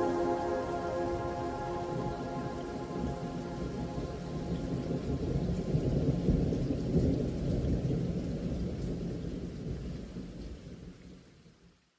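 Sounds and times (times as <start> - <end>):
rain hiss: 0.0 - 11.9
rolling thunder: 2.9 - 10.4.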